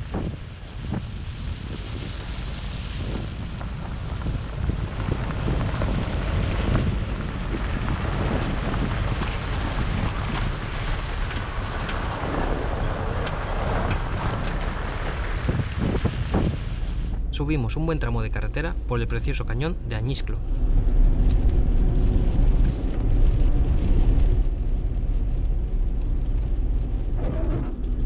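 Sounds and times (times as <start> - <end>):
wind noise on microphone: 0.0 - 17.4
stones crackling: 0.0 - 28.0
tyres rumbling on gravel: 0.0 - 28.0.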